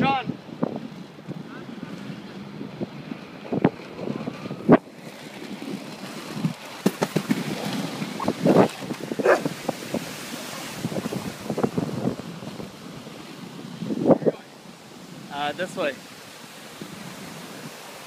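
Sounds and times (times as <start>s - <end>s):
wind on microphone: 0.0s - 15.3s, 16.4s - 18.0s
skate wheels rolling over paving: 1.9s - 13.0s.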